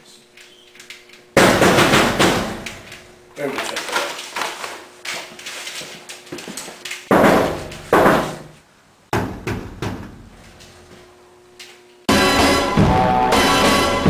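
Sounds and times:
loud bangs: 1.4s - 2.7s.

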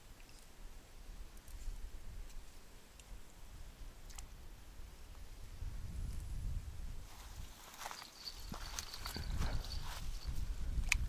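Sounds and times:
wind buffeting microphone: 4.8s - 11.0s.

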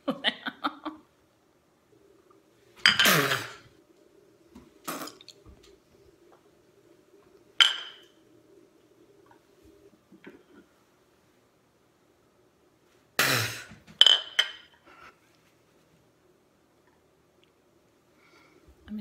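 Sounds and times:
person sipping: 4.8s - 5.4s.

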